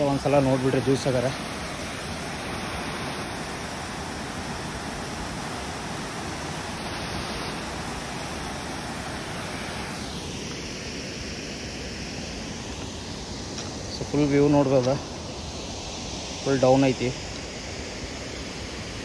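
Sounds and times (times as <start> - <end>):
waterfall rushing: 0.0 - 11.2.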